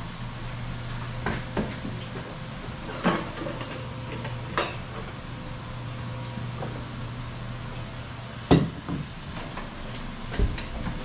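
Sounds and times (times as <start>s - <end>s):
steady low hum: 0.0s - 11.0s
dishes knocking and clinking: 8.5s - 9.1s.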